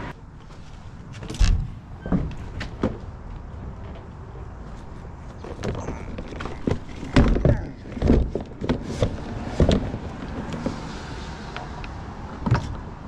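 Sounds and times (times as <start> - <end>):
hard objects knocking and clunking: 5.3 - 10.8.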